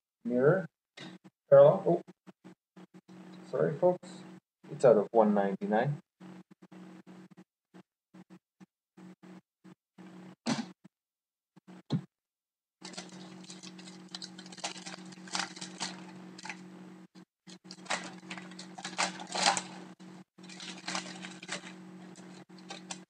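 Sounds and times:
foil wrapper crinkling: 12.8s - 16.6s, 17.5s - 23.0s
steady low hum: 12.8s - 23.0s.

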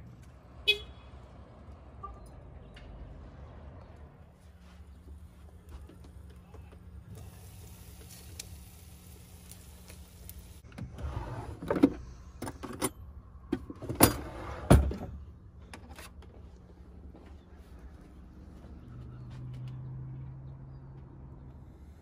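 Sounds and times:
eggs sizzling in a pan: 7.3s - 10.6s.

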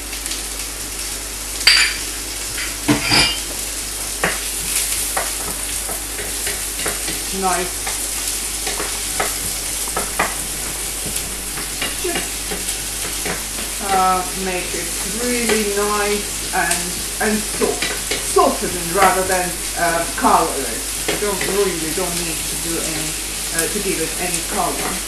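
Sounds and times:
onion sizzling in oil: 0.0s - 25.0s
spatula scraping and knocking pan: 2.6s - 3.6s, 4.2s - 22.1s.

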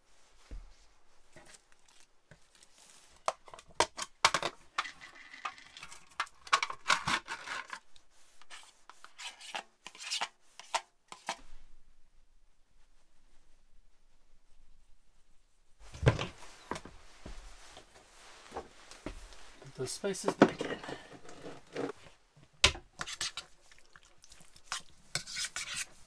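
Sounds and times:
fork scraping plastic tray: 4.8s - 7.8s, 8.4s - 11.4s, 20.6s - 22.0s, 23.0s - 23.5s, 24.7s - 26.0s
spoon scooping into bowl: 23.0s - 25.9s.

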